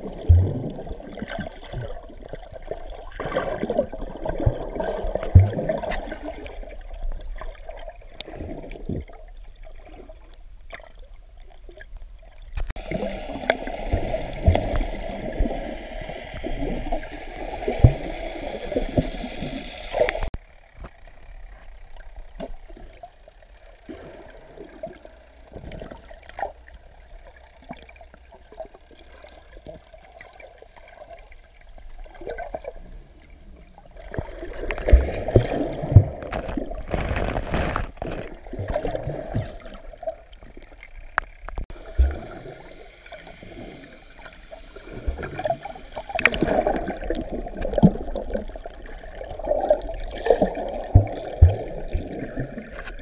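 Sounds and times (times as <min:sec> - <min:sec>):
muffled underwater swirling and bubbling: 0:00.0 - 0:53.0
underwater clicks: 0:45.4 - 0:48.4.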